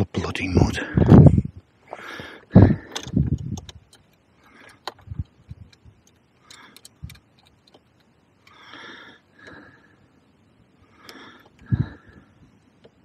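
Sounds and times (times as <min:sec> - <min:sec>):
person breathing through nose: 0:08.5 - 0:10.1, 0:10.8 - 0:12.4.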